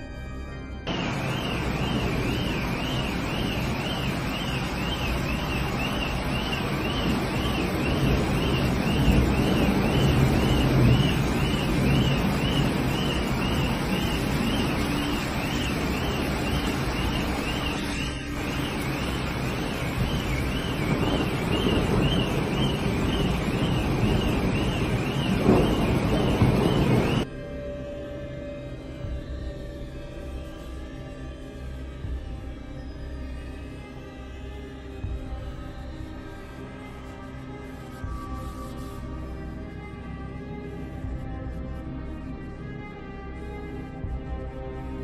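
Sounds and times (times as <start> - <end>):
electronic alarm warbling: 0.9 - 27.3
floodwater rushing: 0.9 - 27.3.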